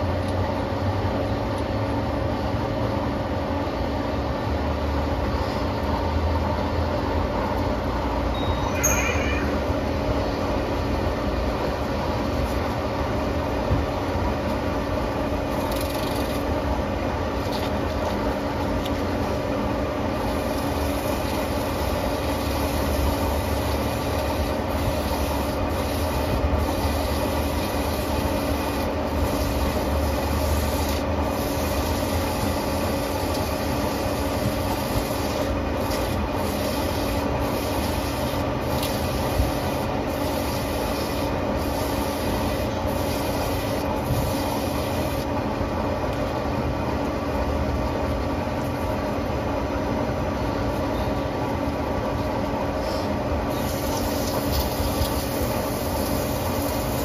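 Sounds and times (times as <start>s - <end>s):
abrasive rubbing spinning metal: 8.6s - 9.9s.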